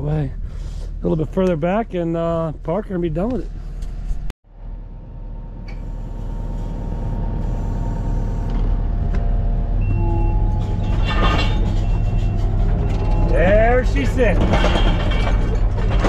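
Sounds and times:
steady whine: 1.0 - 16.0
loader engine running: 3.2 - 16.0.

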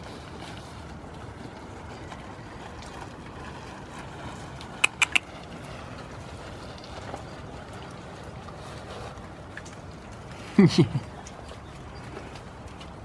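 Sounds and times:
low rumbling background noise: 0.0 - 13.0
quick sharp clicks: 4.8 - 5.2.

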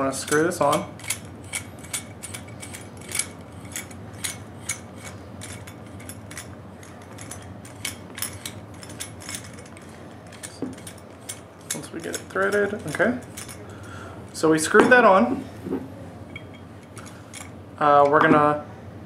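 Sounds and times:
light metallic clicks and clinks: 0.2 - 14.5.

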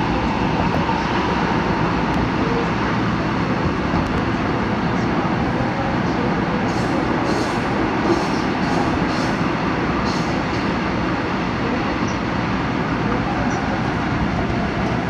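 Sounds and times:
subway train wheels rumbling on rails: 0.0 - 15.0.

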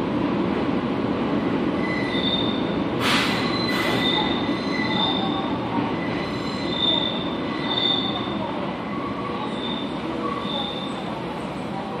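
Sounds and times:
subway train rumble: 0.0 - 12.0
short hiss: 3.0 - 4.0
wheels squealing: 6.0 - 8.3.

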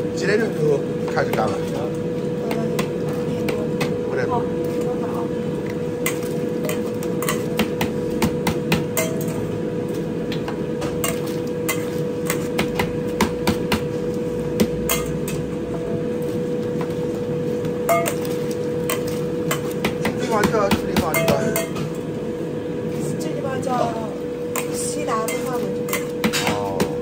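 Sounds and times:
constant hum: 0.0 - 27.0
metal scoop clanking on pot: 6.0 - 9.5, 10.8 - 12.7, 14.7 - 15.5, 17.8 - 22.0, 24.5 - 27.0.

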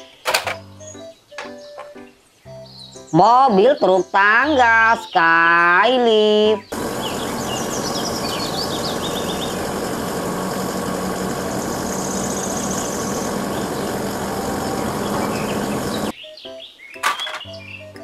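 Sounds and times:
hydraulic boom lifting: 6.7 - 16.1
truck engine idling: 6.7 - 16.1.

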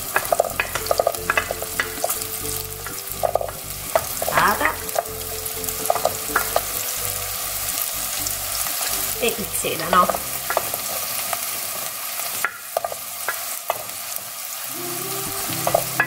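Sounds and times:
vegetable pieces clattering into pot: 0.0 - 5.1
oil sizzling: 0.0 - 16.0.

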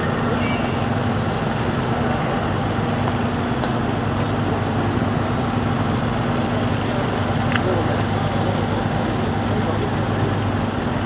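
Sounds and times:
crowd street noise rumble: 0.0 - 11.0.

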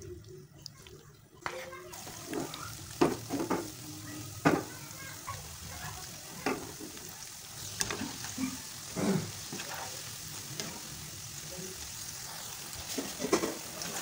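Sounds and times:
fritters sizzling in oil: 0.0 - 14.0
skimmer knocking and scraping pan: 1.4 - 3.8.

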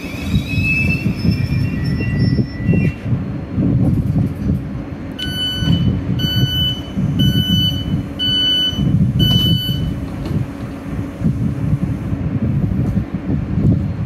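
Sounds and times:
low rumble of standing train: 0.0 - 14.0
train door warning beeps: 5.2 - 10.0.

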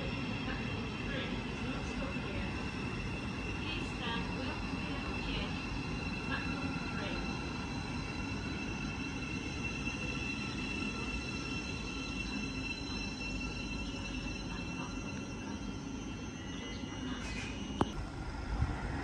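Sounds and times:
train running past: 0.0 - 19.0
low rumble: 17.8 - 19.0.

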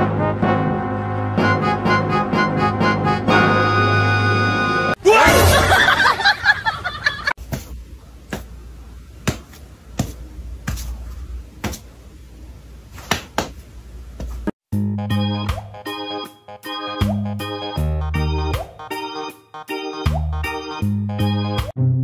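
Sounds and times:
background music: 0.0 - 6.2, 14.7 - 22.0
cat paws slapping a hand: 13.0 - 13.6.

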